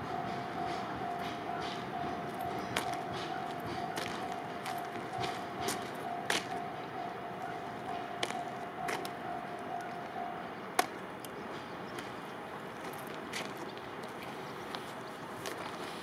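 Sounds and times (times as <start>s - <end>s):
level crossing alarm dinging: 0.0s - 10.6s.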